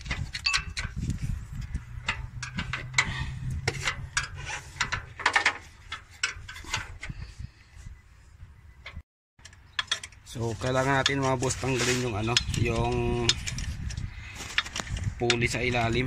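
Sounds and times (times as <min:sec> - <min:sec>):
wrench and bolts clinking: 0:00.0 - 0:07.0.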